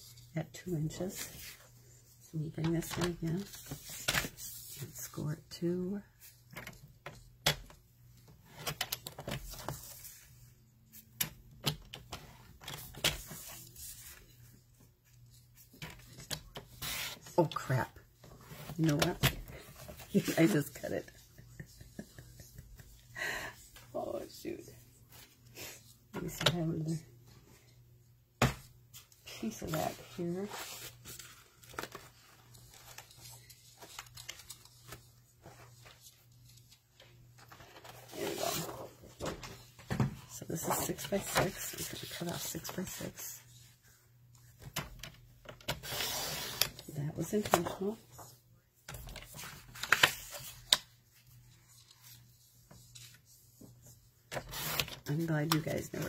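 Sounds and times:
paper rustling: 29.7 - 39.7.

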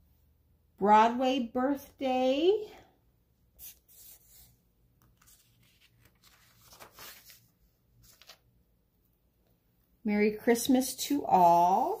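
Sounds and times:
page rustling: 3.6 - 8.5.

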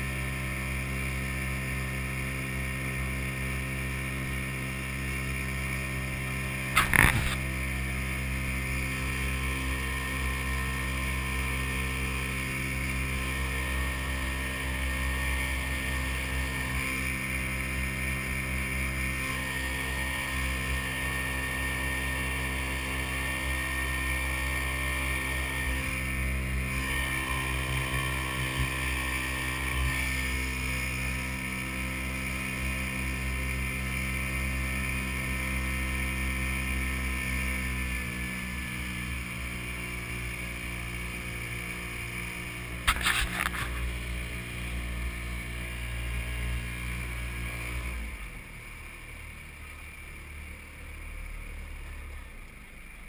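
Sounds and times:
outboard motor running: 0.0 - 53.0.

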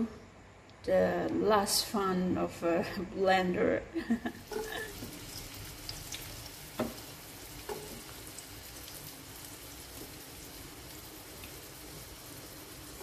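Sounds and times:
onion sizzling in hot oil: 4.3 - 13.0.

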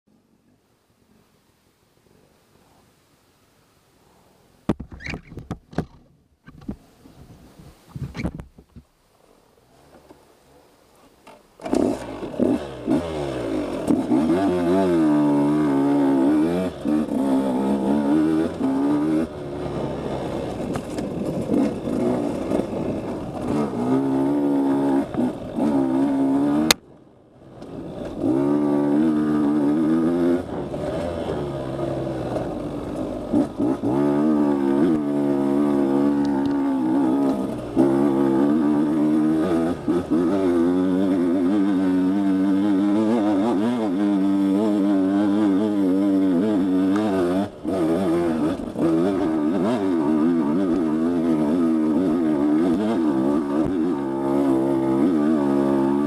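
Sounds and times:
dirt bike engine revving: 11.6 - 26.8, 27.4 - 56.0.

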